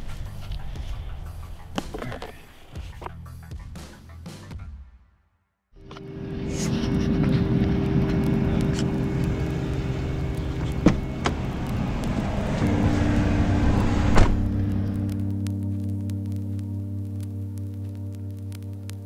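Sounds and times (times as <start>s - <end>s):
vehicle engine running: 0.0s - 3.6s, 5.8s - 17.5s
car door clicks: 10.7s - 11.4s, 14.1s - 14.5s.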